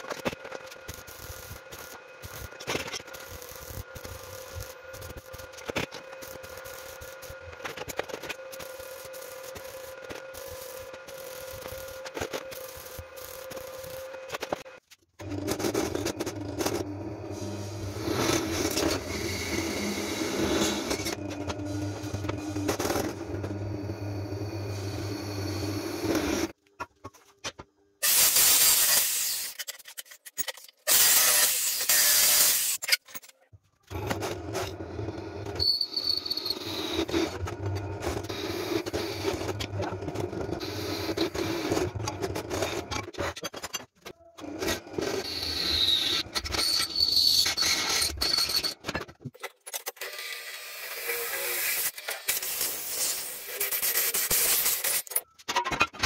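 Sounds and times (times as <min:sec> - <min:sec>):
drill bit squealing: 0:35.6 - 0:37.2, 0:45.2 - 0:48.8.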